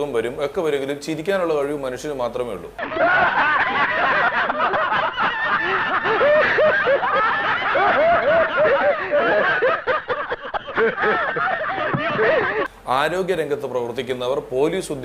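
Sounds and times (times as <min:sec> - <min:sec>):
men laughing: 0:02.8 - 0:12.7.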